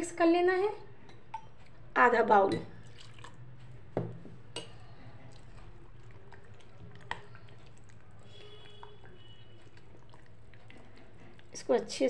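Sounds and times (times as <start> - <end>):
batter squishing: 2.9 - 12.0.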